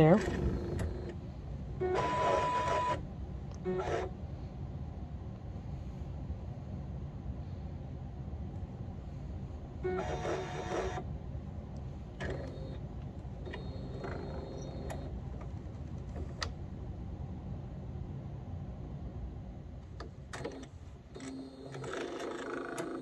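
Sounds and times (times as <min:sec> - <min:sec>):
printer motor whirring: 0:00.0 - 0:04.2, 0:09.8 - 0:11.1, 0:12.0 - 0:16.5, 0:20.0 - 0:23.0
steady low hum: 0:00.0 - 0:23.0
printer click: 0:13.4 - 0:16.6, 0:20.0 - 0:23.0.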